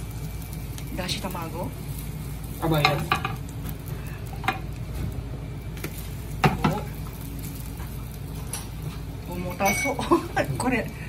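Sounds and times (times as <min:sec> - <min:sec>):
egg sizzling in pan: 0:00.0 - 0:11.0
gas burner rush: 0:00.0 - 0:11.0
utensils knocking against pan: 0:02.8 - 0:03.4, 0:09.6 - 0:10.0.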